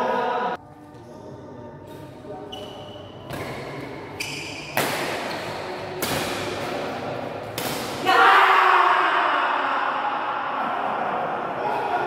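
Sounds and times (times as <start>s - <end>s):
shoes squeaking on court floor: 2.5s - 5.8s
racket striking shuttlecock: 4.4s - 8.0s.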